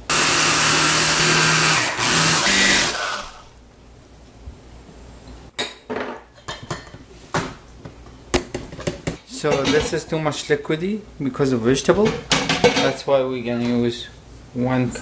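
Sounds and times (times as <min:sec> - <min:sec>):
food processor motor running: 0:00.0 - 0:03.5.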